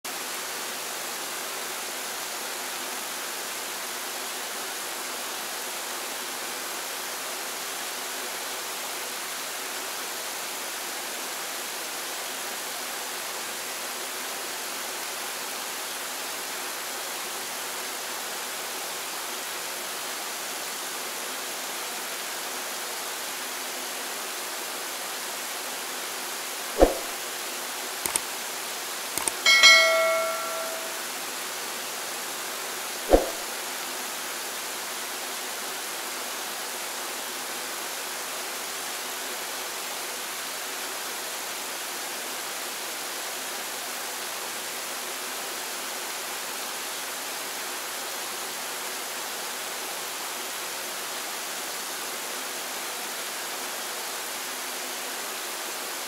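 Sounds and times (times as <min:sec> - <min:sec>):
sharp knock: 0:26.8 - 0:27.1, 0:29.2 - 0:31.0, 0:33.1 - 0:33.4.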